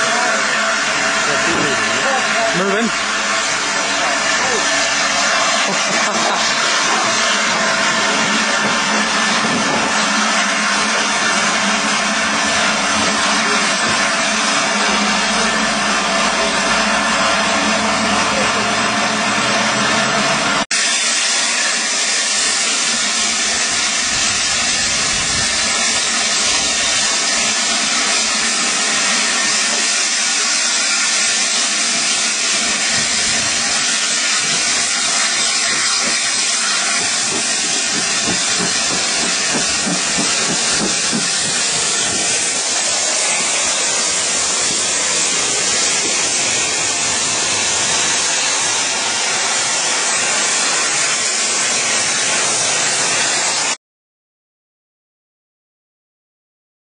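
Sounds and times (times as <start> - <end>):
railway carriage rushing: 0.0 - 53.8
wind on microphone: 24.1 - 25.6.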